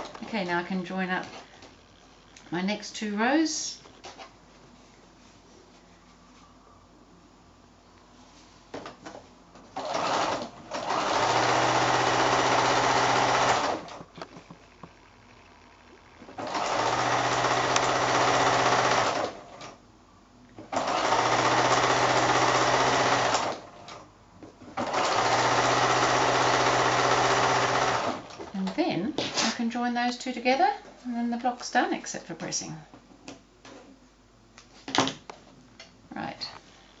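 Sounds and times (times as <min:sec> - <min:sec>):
sewing machine stitching: 0:09.8 - 0:14.0, 0:16.3 - 0:19.8, 0:20.6 - 0:24.0, 0:24.8 - 0:28.4.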